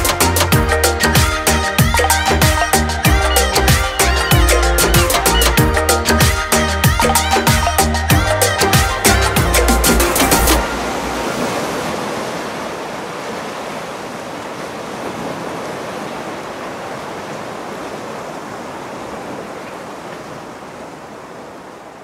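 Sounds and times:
waves breaking on beach: 0:10.0 - 0:22.0.

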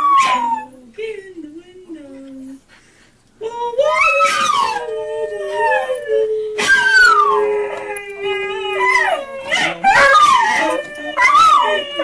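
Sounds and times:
dogs howling: 0:03.8 - 0:12.0
dog howling from computer video: 0:03.9 - 0:04.9, 0:06.6 - 0:12.0.

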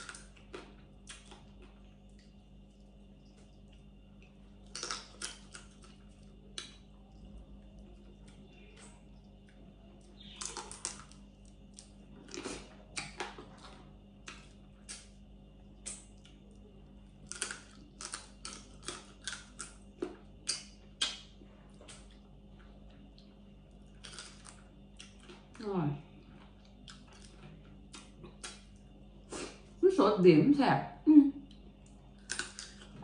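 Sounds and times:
crab shells cracking: 0:04.6 - 0:06.9, 0:10.2 - 0:13.4, 0:17.2 - 0:21.3, 0:24.0 - 0:25.5, 0:32.2 - 0:33.0.

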